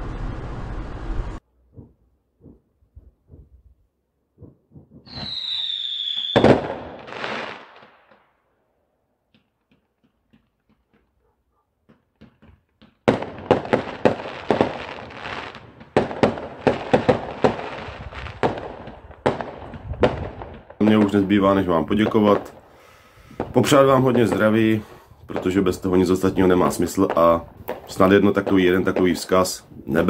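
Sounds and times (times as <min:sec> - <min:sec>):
firework bangs and crackles: 0:04.4 - 0:08.2, 0:11.9 - 0:30.0
firework whistle: 0:05.0 - 0:07.9
faint firework pops: 0:27.0 - 0:27.9.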